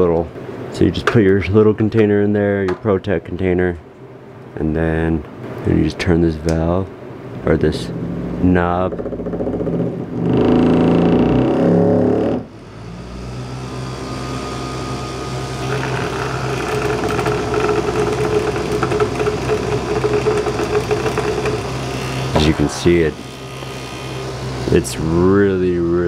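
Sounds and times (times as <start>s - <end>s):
vibrating table buzzing and rattling: 7.4s - 26.0s.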